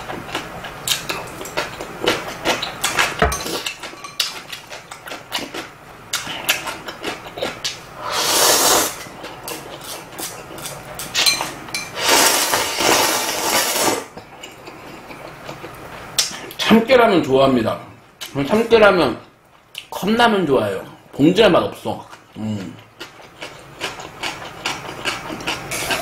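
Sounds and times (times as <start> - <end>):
person slurping noodles: 8.0 - 9.0, 12.0 - 14.1, 25.5 - 26.0
chopsticks clinking on bowl: 10.6 - 12.0
chewing: 22.1 - 26.0.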